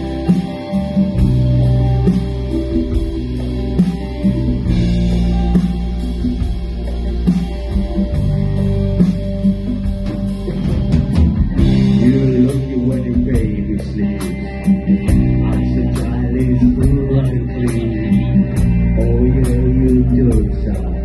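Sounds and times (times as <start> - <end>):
rock band playing live: 0.0 - 21.0
man singing: 11.6 - 21.0.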